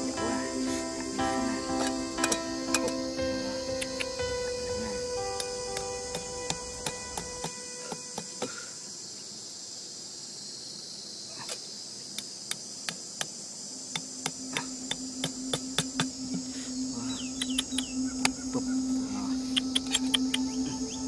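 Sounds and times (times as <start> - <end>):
crickets chirring: 0.0 - 21.0
hatchet taps and clicks: 5.4 - 8.3
low steady hum: 13.6 - 21.0.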